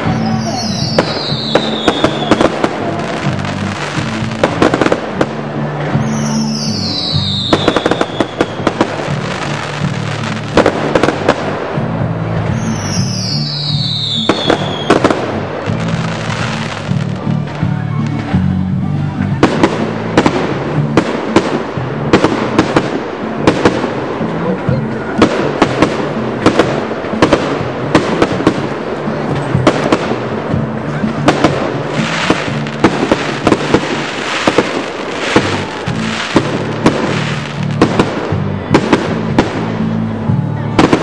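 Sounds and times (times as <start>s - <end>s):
firework hissing crackle: 0.0s - 17.4s, 25.6s - 40.0s
firework bangs: 0.0s - 17.6s, 19.3s - 41.0s.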